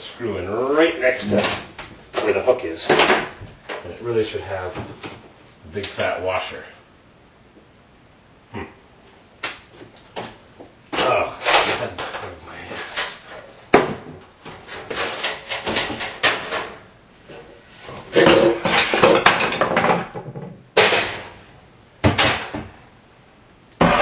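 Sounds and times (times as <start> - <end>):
knocking and clattering: 11.0 - 16.9, 18.1 - 21.4, 22.0 - 22.8.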